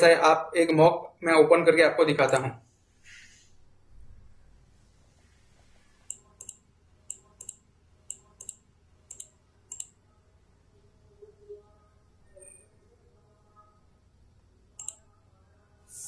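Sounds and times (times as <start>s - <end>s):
computer mouse clicking: 6.0s - 10.0s, 14.8s - 15.0s.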